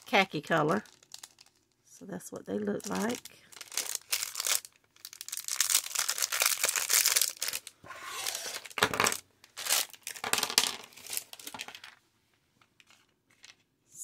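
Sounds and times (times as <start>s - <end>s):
plastic bag crinkling: 0.0s - 1.8s, 2.6s - 12.0s.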